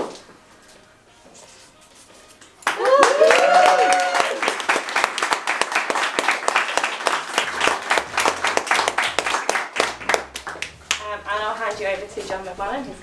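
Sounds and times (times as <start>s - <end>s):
people applauding: 2.6s - 11.2s.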